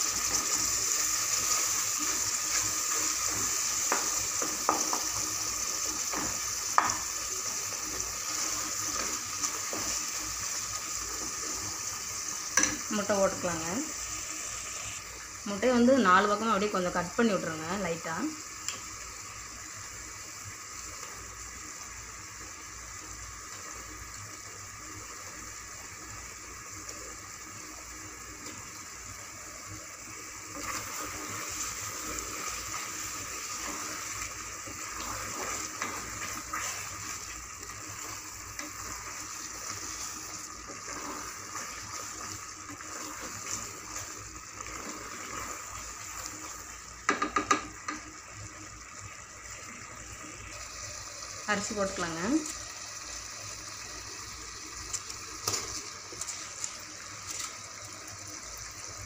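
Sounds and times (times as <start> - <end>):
food sizzling in a pot: 0.0 - 59.0
wooden spoon knocking on pot: 47.0 - 48.1.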